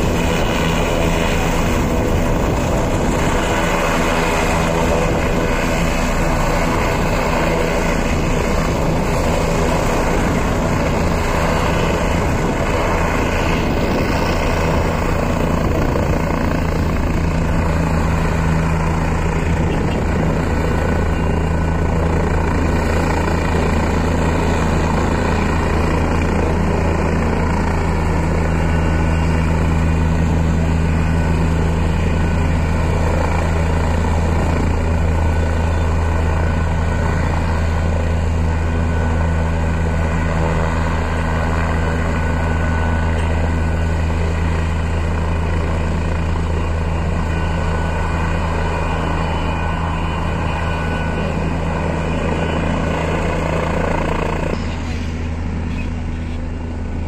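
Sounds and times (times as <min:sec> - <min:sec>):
helicopter rotor and turbine hum: 0:00.0 - 0:57.0.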